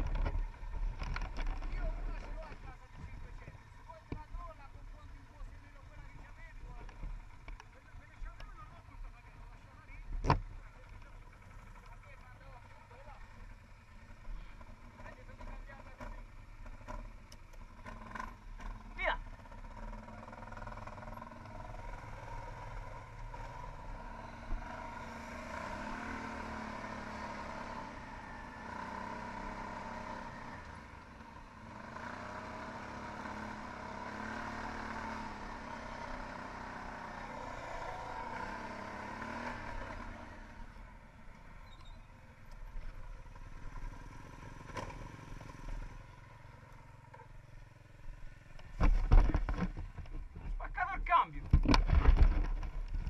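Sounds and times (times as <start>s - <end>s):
quad engine revving: 17.8s - 40.8s
knocks and clatter: 48.5s - 50.6s, 51.4s - 53.0s.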